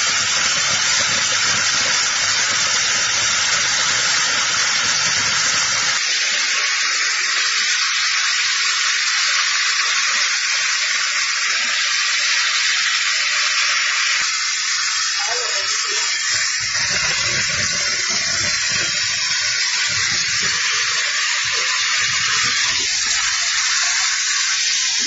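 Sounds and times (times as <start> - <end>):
loud airy hiss of blowing air: 0.0 - 8.5, 14.0 - 25.0.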